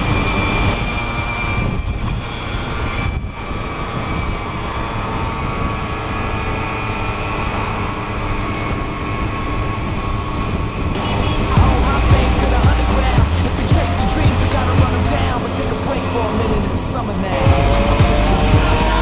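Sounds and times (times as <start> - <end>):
moped engine running: 0.0 - 2.7, 11.3 - 19.0.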